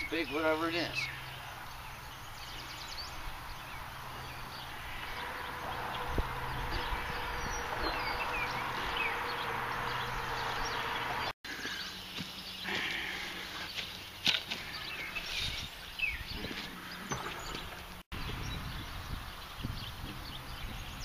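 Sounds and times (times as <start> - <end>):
birds chirping: 0.0 - 21.0
low hum: 2.4 - 11.3
steady rushing noise: 4.2 - 11.3.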